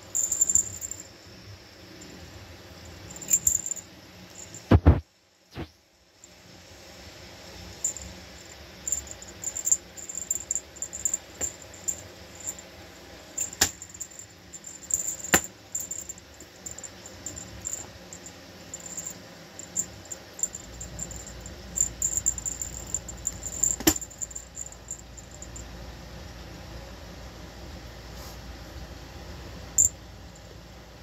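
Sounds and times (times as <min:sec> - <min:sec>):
high tinkling ticks of a toy: 0:00.0 - 0:01.2, 0:02.8 - 0:04.7, 0:07.8 - 0:12.7, 0:13.4 - 0:25.7, 0:29.8 - 0:30.6.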